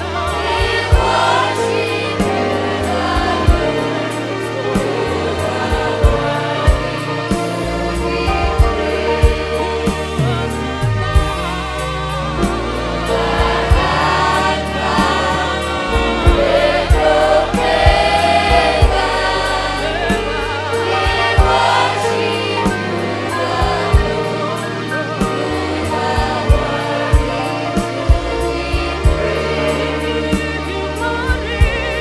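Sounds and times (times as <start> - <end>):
bass: 0.0 - 32.0
choir singing: 0.0 - 32.0
drum beat: 0.4 - 1.6, 2.2 - 4.0, 4.7 - 11.7, 12.4 - 19.3, 20.0 - 22.8, 23.5 - 24.3, 26.1 - 29.4.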